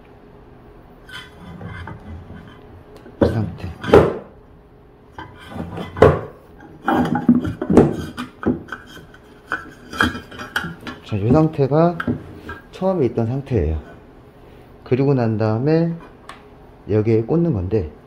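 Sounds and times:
sharp knocks: 3.2 - 4.3.

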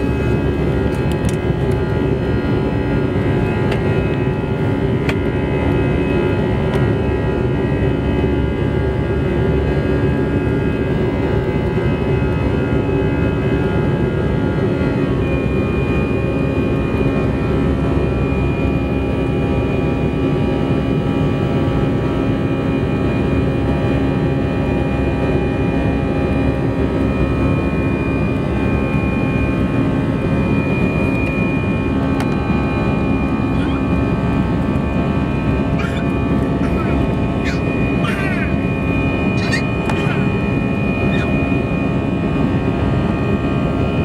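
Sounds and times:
jet engines and rushing air: 0.0 - 17.2, 28.2 - 44.0
low hum: 0.0 - 17.8
thin high whine: 35.0 - 42.0.

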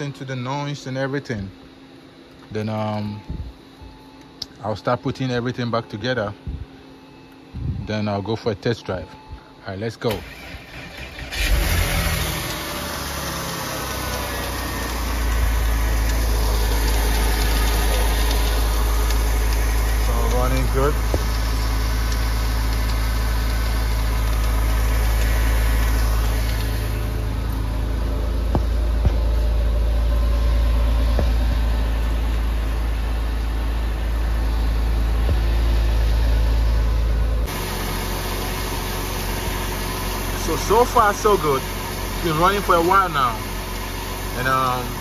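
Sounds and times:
car engine idling: 10.2 - 45.0.

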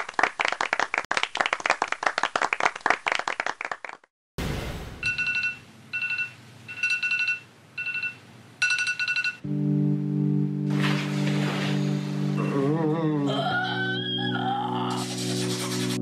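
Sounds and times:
crowd applause: 0.0 - 4.1
smartphone alarm beeping: 5.0 - 9.4.

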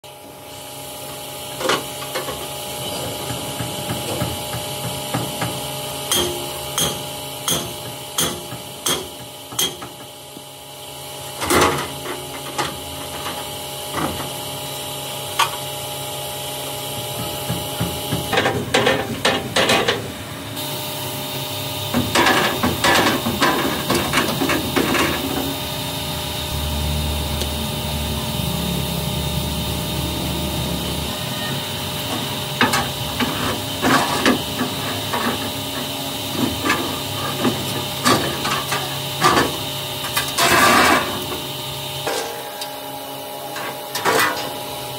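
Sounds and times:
hammer striking metal: 5.1 - 10.0
low steady hum: 22.3 - 39.5.

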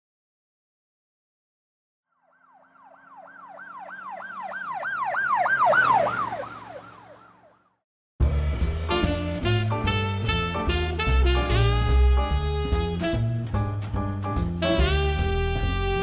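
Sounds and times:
emergency siren fast yelp: 2.1 - 7.8
low engine rumble: 8.2 - 16.0.

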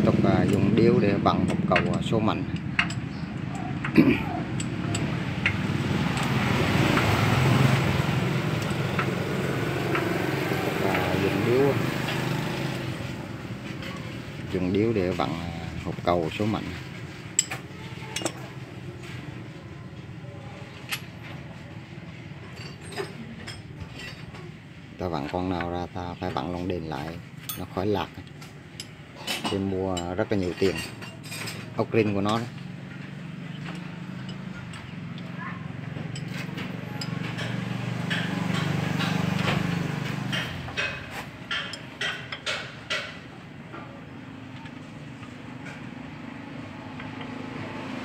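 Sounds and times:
wrench clinking on bolts: 0.4 - 6.4, 8.6 - 9.1, 17.3 - 18.5, 33.5 - 35.3, 36.1 - 38.7, 40.2 - 43.3
metal wrench clinks: 1.5 - 5.6, 17.4 - 18.4, 36.1 - 37.5
vehicle engine drone passing: 3.7 - 13.8, 32.6 - 41.0, 44.2 - 48.0.

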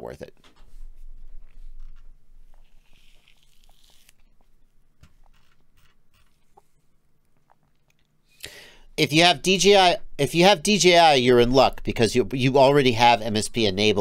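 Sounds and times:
hand rubbing a beard: 0.4 - 6.8.

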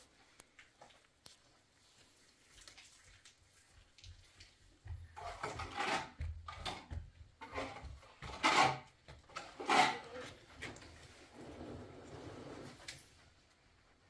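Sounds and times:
plaster rubbed on wall: 5.2 - 10.4.

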